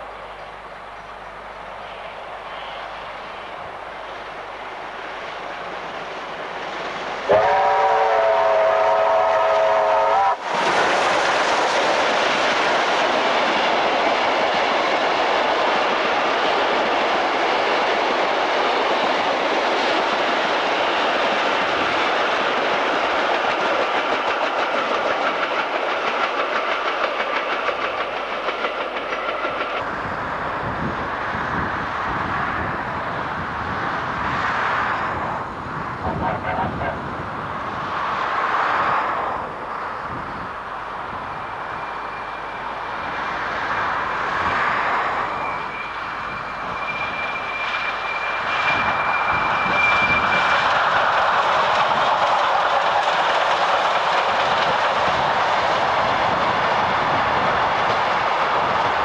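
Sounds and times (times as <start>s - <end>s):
train wheels rushing on rails: 0.0s - 59.0s
steam locomotive chime whistle: 7.3s - 10.4s, 41.3s - 43.1s, 45.2s - 50.6s.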